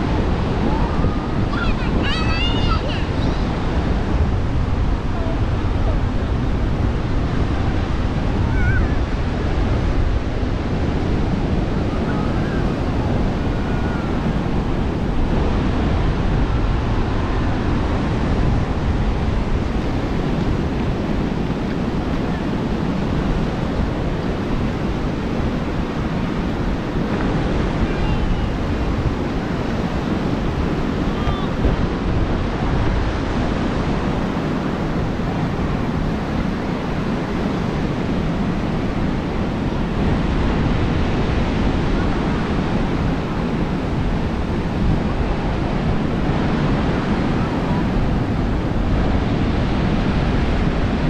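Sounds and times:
surf washing onto beach: 0.0 - 51.0
wind rumbling on microphone: 0.0 - 51.0
faint voices: 0.6 - 3.6, 31.0 - 31.7.

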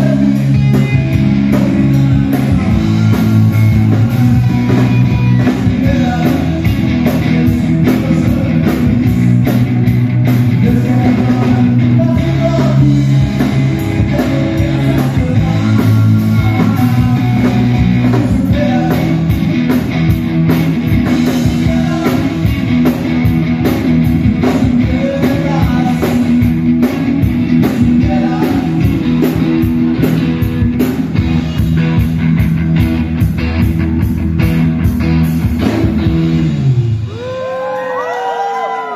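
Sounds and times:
person singing: 0.0 - 9.2, 10.5 - 19.4, 21.3 - 23.0, 24.4 - 26.5, 27.6 - 30.2
live rock band playing: 0.0 - 38.9.

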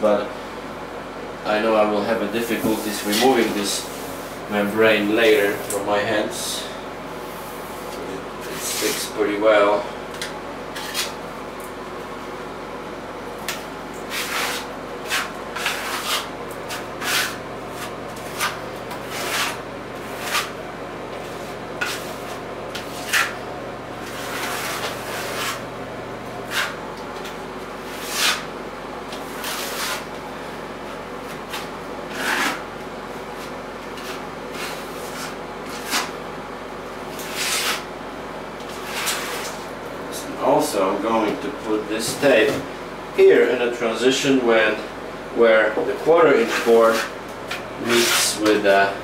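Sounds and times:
steady low hum: 0.0 - 49.0
putty knife scraping wet membrane: 10.7 - 11.2, 13.5 - 23.4, 24.0 - 25.7, 26.5 - 28.5, 29.1 - 30.1, 31.5 - 32.6, 33.9 - 36.2, 37.2 - 37.9, 38.6 - 39.7, 46.2 - 48.7.

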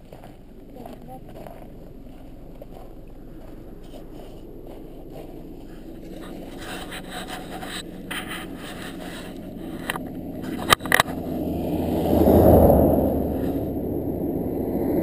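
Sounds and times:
snow shovel scraping snow: 5.6 - 10.7, 13.3 - 13.7.

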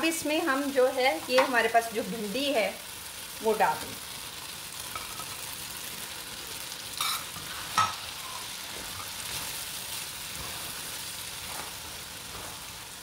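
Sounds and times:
oil sizzling in a wok: 0.0 - 13.0
spatula stirring in a pan: 4.0 - 13.0.

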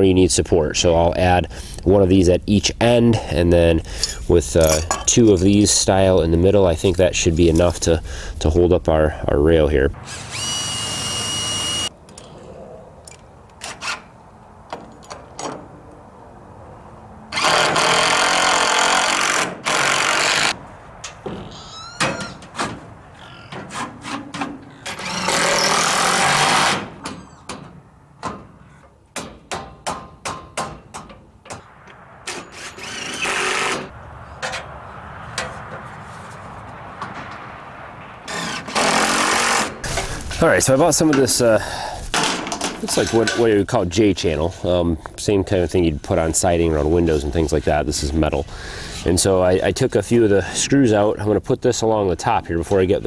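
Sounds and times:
cordless drill driving screws: 10.1 - 11.9, 17.3 - 20.6, 24.8 - 26.8, 32.5 - 33.9, 38.3 - 39.7.

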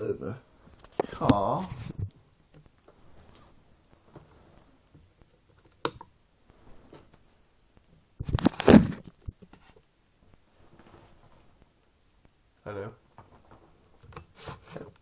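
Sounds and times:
rubbing and knocking on microphone: 0.7 - 5.5, 6.5 - 11.6.

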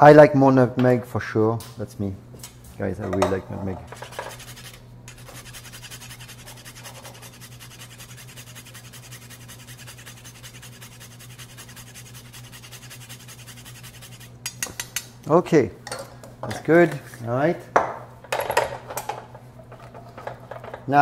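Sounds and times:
low steady hum: 0.0 - 21.0
nutmeg rasping on a grater: 3.9 - 14.4.

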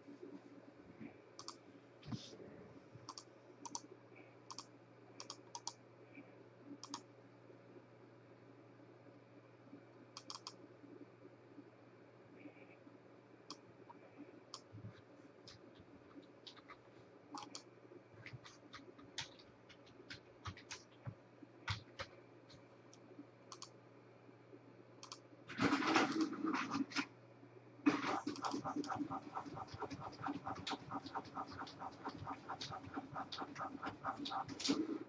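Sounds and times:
faint steady hum: 0.0 - 35.0
computer keyboard typing clicks: 1.4 - 1.6, 3.1 - 3.8, 4.5 - 5.8, 6.8 - 7.0, 10.2 - 10.6, 17.4 - 17.7, 18.3 - 22.6, 23.5 - 23.7, 25.0 - 25.2, 28.2 - 34.8.

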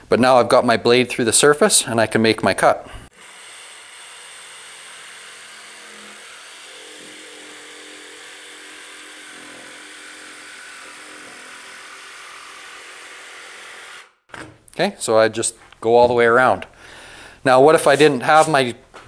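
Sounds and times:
jigsaw cutting panel: 3.1 - 14.1.

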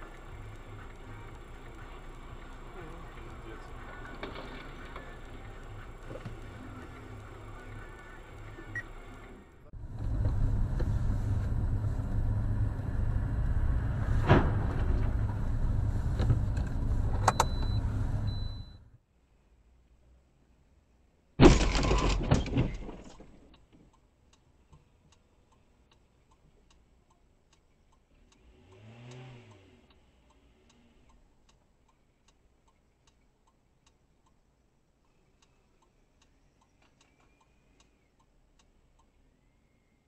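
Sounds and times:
faint even ticking: 0.0 - 4.1
low hum rising and falling: 0.0 - 18.8
car collision crash: 14.1 - 15.3, 21.4 - 23.4.

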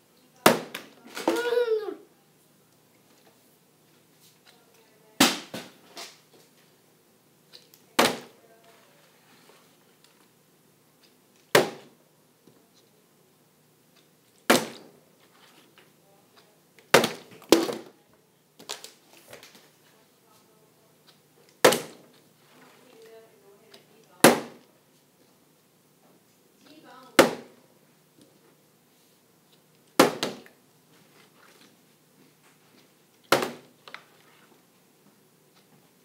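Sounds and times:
plastic bottle landing knock: 33.3 - 33.7.

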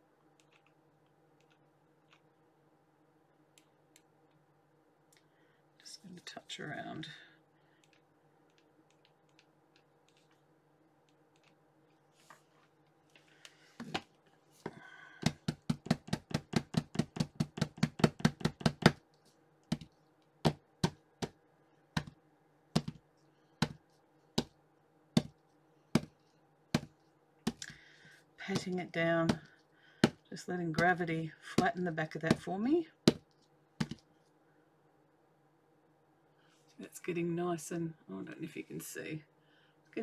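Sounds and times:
mold tapping on desk: 15.2 - 19.0, 22.0 - 22.2, 22.8 - 23.0, 26.0 - 26.9, 33.8 - 34.0.

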